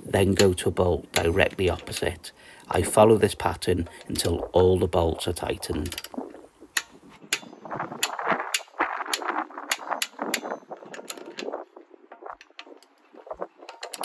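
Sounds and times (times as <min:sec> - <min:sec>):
torque wrench clicking: 0:05.8 - 0:11.5.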